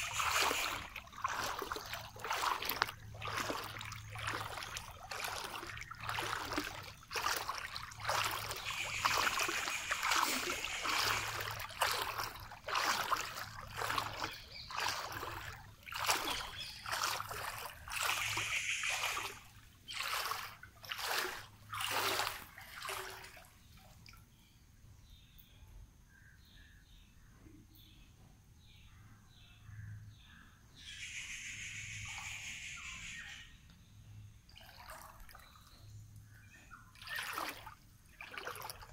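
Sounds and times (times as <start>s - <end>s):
floodwater splashing: 0.0s - 24.2s, 34.5s - 35.8s, 36.9s - 38.9s.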